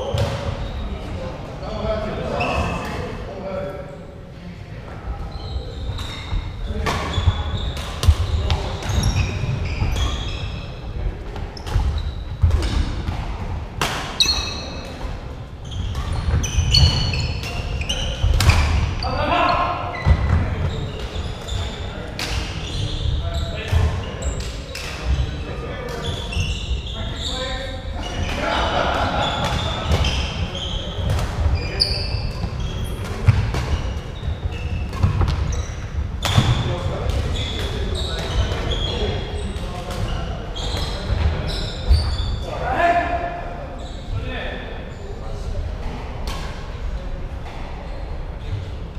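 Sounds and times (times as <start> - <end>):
shoes squeaking on wooden court: 2.3 - 3.0, 5.2 - 13.3, 14.0 - 42.5, 43.8 - 44.2
shoes squeaking on wooden floor: 5.3 - 10.8, 15.6 - 21.8, 26.0 - 28.4, 40.1 - 42.5.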